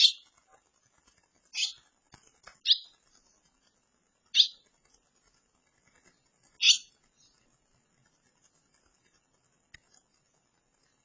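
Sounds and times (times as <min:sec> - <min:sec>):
nestlings chirping: 0:00.0 - 0:00.5, 0:01.4 - 0:07.7
faint ticks: 0:00.0 - 0:11.0.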